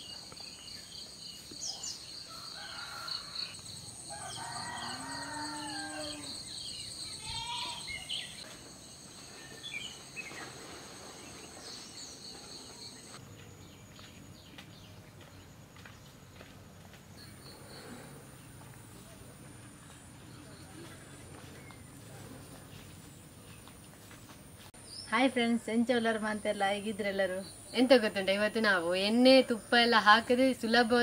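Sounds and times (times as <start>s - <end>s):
high-pitched insect chorus: 0.0s - 13.7s
rooster crowing: 2.3s - 6.5s.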